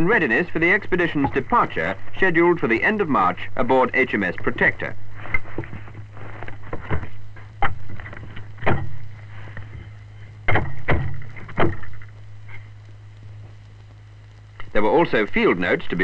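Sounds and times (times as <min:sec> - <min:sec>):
steady low hum: 0:00.0 - 0:16.0
wooden knocks and clatter: 0:05.3 - 0:12.2.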